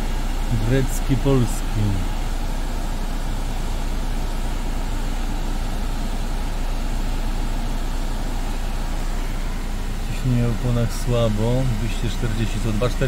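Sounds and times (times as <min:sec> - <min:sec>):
car engine idling: 0:00.0 - 0:13.0
climate control fan blowing: 0:00.0 - 0:13.0.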